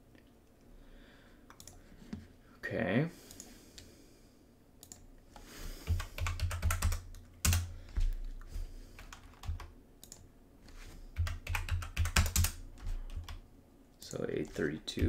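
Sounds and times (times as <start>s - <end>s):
typing on computer keyboard: 5.8s - 8.0s, 9.0s - 10.2s, 11.2s - 13.4s.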